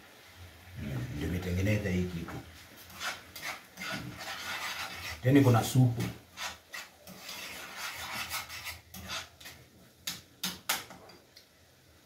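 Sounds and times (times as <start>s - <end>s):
spoon scraping frying pan: 2.2s - 9.7s.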